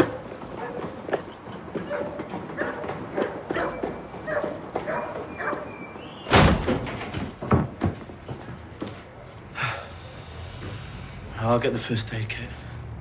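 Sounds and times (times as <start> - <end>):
footsteps on metal staircase: 0.0 - 9.5
loud slam: 6.3 - 6.9.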